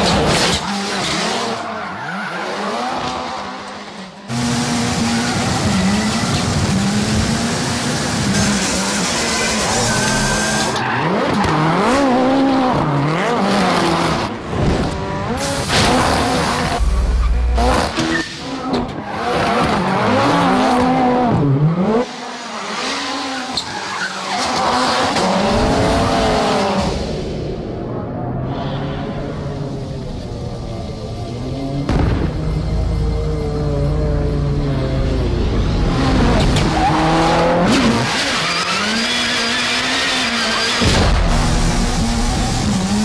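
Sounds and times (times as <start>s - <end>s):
tyres squealing and skidding: 0.0s - 4.2s, 4.8s - 14.0s, 15.3s - 26.6s, 35.2s - 40.9s
rally car engine revving: 0.0s - 43.0s.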